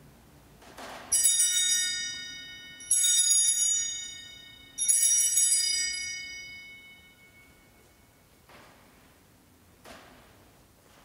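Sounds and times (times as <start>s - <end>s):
altar bells ringing: 1.1s - 8.3s.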